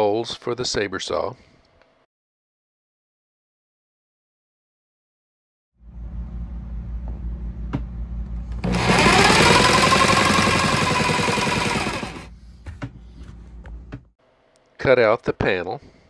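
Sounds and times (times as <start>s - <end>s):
jigsaw cutting wood: 8.6s - 12.3s.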